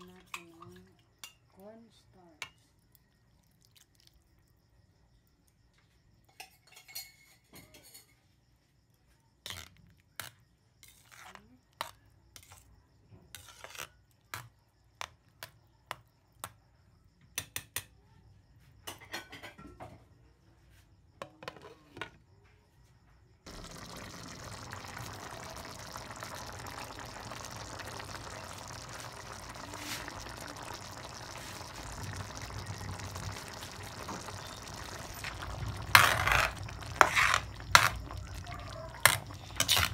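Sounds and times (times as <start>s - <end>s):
stew bubbling at a simmer: 2.7s - 4.8s, 23.5s - 39.9s
utensil scraping cooking pot: 23.5s - 39.9s.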